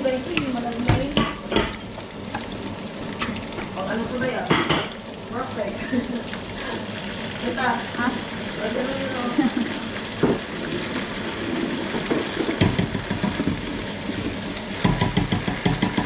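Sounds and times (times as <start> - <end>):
food sizzling in a frying pan: 0.0 - 16.0
spatula scraping and knocking pan: 11.4 - 16.0.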